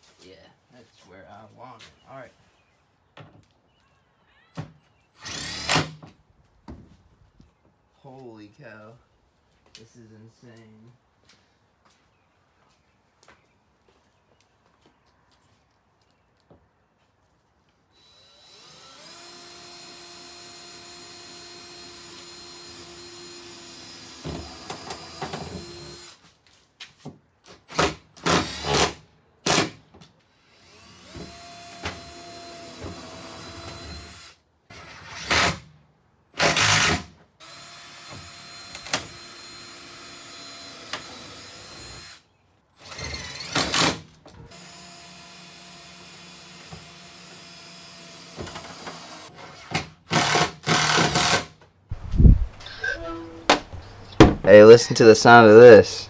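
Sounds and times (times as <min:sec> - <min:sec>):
cordless drill running: 0:05.2 - 0:05.9, 0:17.9 - 0:26.2, 0:30.3 - 0:34.4, 0:36.4 - 0:51.4.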